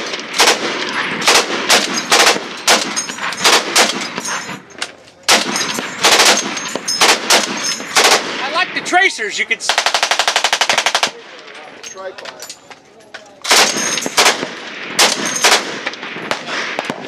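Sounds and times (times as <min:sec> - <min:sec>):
heavy machine gun firing: 0:00.0 - 0:04.2, 0:05.3 - 0:08.5, 0:13.5 - 0:17.0.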